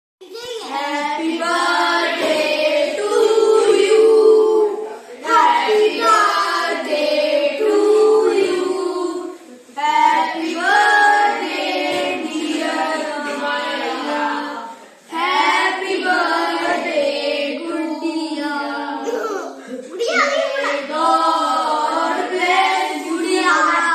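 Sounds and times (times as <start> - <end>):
children singing: 0.6 - 19.8, 20.4 - 23.9.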